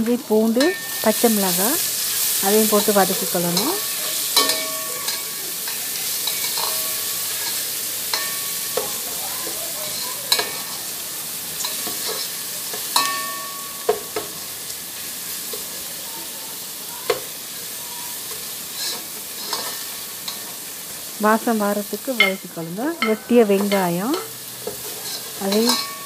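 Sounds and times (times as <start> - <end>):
spices sizzling in hot oil: 0.0 - 26.0
wooden spatula scraping a pot: 18.7 - 20.5, 24.7 - 26.0.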